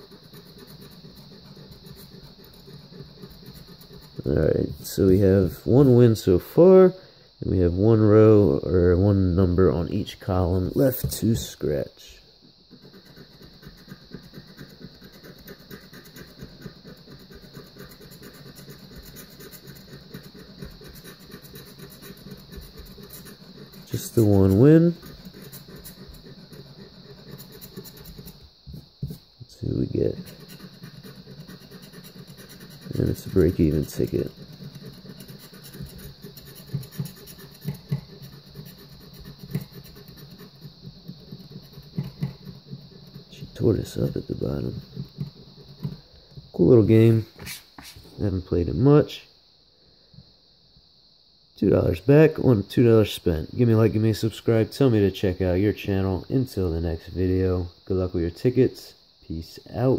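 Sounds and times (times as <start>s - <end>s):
knife scraping lottery ticket: 0.0s - 6.3s, 12.7s - 28.4s, 29.0s - 45.9s.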